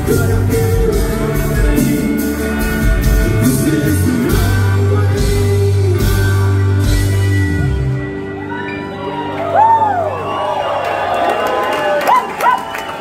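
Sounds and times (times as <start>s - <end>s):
live rock band playing: 0.0s - 10.4s.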